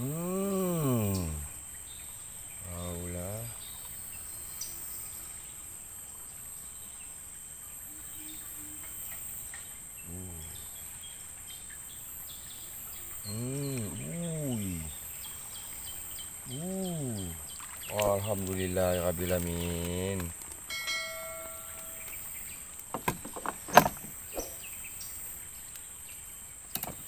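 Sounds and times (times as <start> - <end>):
man making wordless vocal sounds: 0.0 - 1.6, 2.6 - 3.6, 10.0 - 10.7, 13.2 - 15.0, 16.4 - 20.3
insects high-pitched drone: 0.0 - 27.0
short high insect chirps: 7.8 - 22.8, 23.7 - 26.2.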